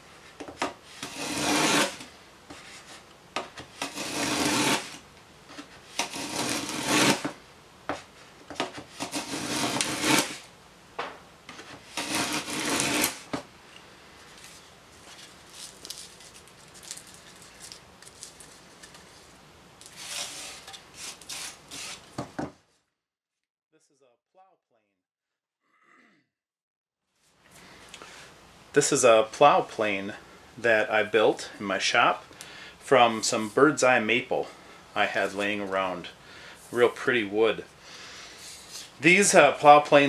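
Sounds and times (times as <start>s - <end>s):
plane shaving wood: 0.9s - 3.0s, 3.7s - 7.4s, 8.6s - 10.5s, 11.5s - 13.4s.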